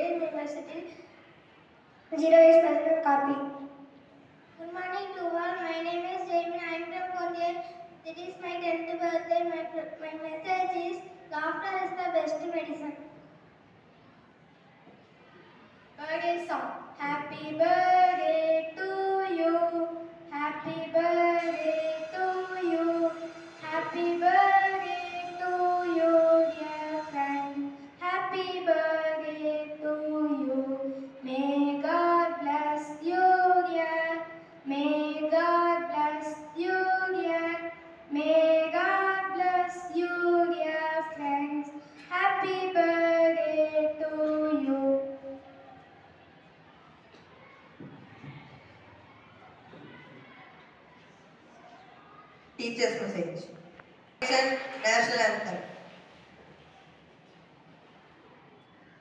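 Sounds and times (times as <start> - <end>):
girl singing unaccompanied: 16.0 - 45.4.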